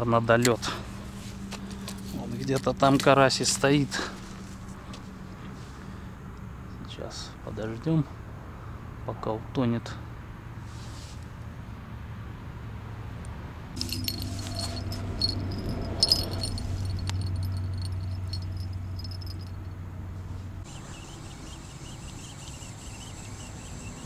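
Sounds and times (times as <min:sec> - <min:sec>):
fishing reel clicking and rattling: 0:16.0 - 0:18.4.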